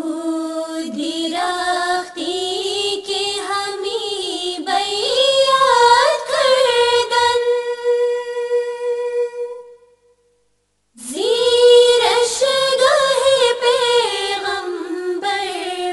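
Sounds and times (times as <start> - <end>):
person singing devotional hymn: 0.0 - 9.6, 11.0 - 15.9.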